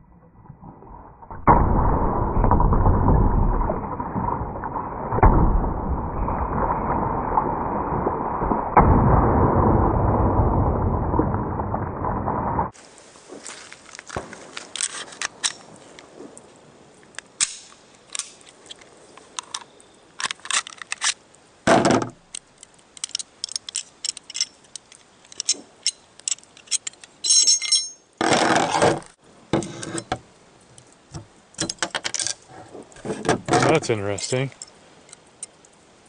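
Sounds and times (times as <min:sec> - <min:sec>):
pistol parts clicking and scraping: 0:17.2 - 0:21.2, 0:22.3 - 0:28.0.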